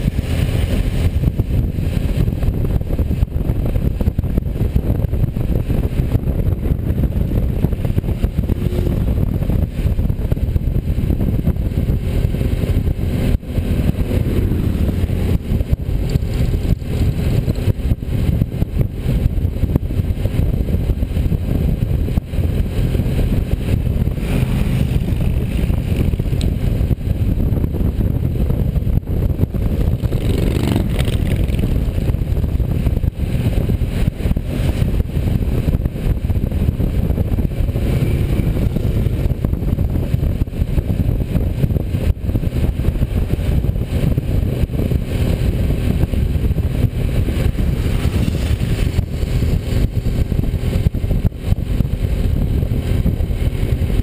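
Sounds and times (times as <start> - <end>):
motorcycle engine and road drone: 0.0 - 54.0
wind on microphone: 0.0 - 54.0.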